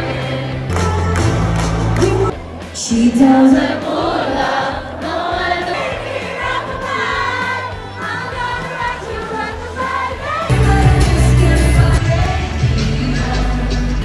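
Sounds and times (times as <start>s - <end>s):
music with singing voices: 0.0s - 14.0s
heavy bass line: 10.5s - 14.0s.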